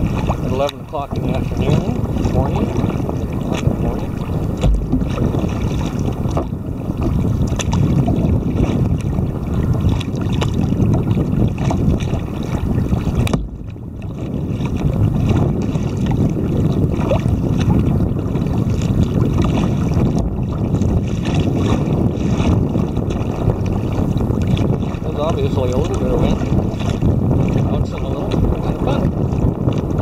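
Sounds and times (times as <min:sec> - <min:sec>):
water splashing against hull: 0:00.0 - 0:30.0
wind buffeting microphone: 0:00.0 - 0:30.0.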